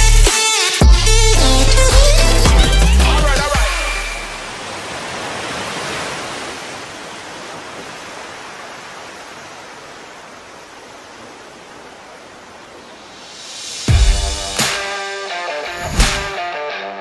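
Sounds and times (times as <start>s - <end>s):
music: 0.0s - 4.5s, 13.9s - 17.0s
ocean surf rushing: 3.5s - 16.4s.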